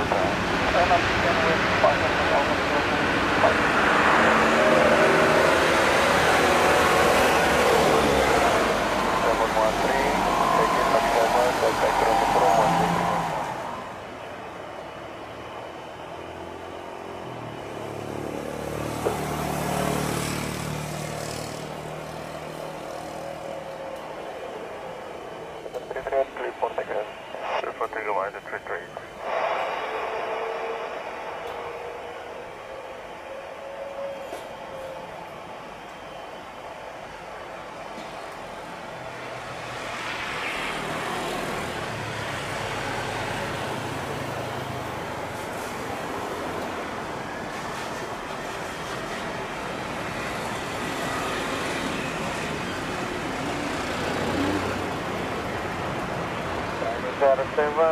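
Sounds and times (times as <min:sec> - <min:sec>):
jet engines humming: 0:00.0 - 0:57.9
low hum: 0:23.9 - 0:34.1.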